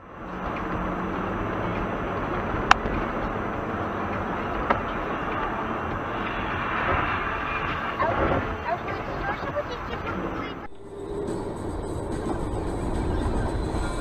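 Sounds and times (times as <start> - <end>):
car road and engine noise: 0.0 - 14.0.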